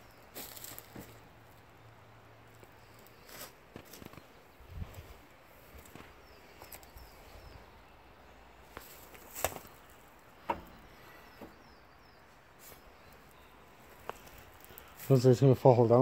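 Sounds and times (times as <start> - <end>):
footsteps on leaf litter: 0.1 - 1.2, 2.6 - 4.3, 8.7 - 10.2, 12.6 - 15.4
twigs cracking: 2.4 - 4.5, 8.6 - 11.6, 12.6 - 15.2
faint bird chirps: 5.8 - 15.3.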